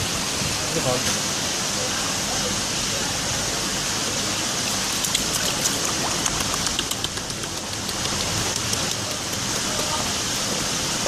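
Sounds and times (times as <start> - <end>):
water dripping into plastic basin: 4.7 - 9.7.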